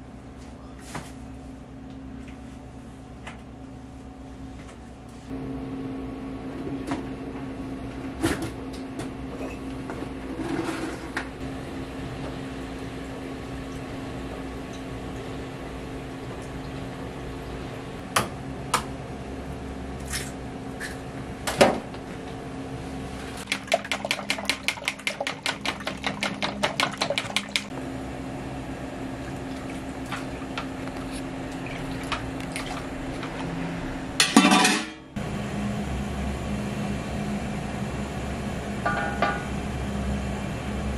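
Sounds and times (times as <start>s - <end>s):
machine hum: 5.3s - 40.9s
dishes and utensils clinking: 34.2s - 35.0s.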